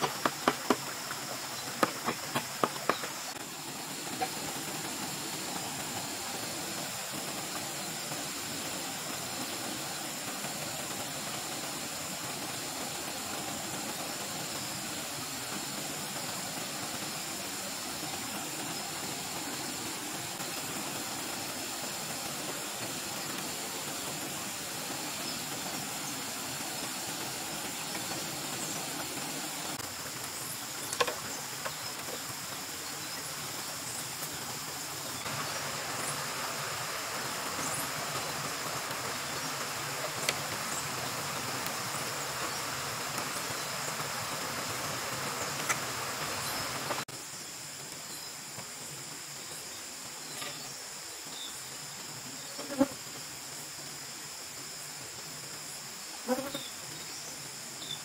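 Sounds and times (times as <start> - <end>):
high insect drone: 0.0 - 58.0
rushing stream: 0.0 - 58.0.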